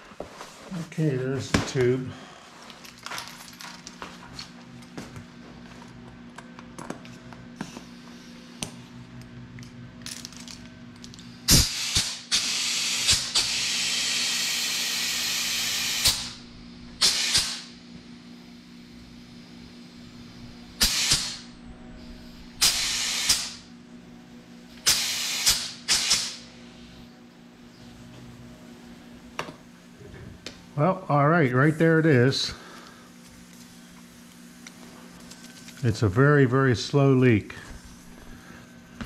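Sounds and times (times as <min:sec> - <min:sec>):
compressed air hissing: 0:11.4 - 0:16.4, 0:17.0 - 0:17.8, 0:18.5 - 0:23.6, 0:24.8 - 0:26.5.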